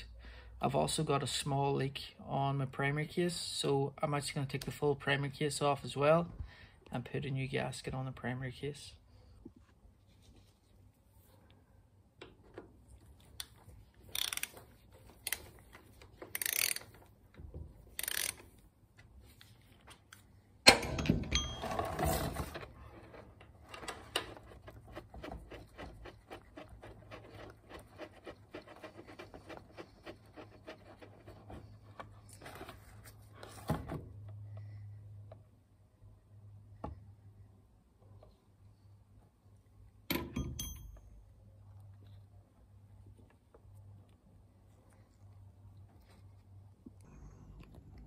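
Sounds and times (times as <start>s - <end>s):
socket ratchet clicking: 14.1s - 14.6s, 16.3s - 17.0s, 17.9s - 18.5s.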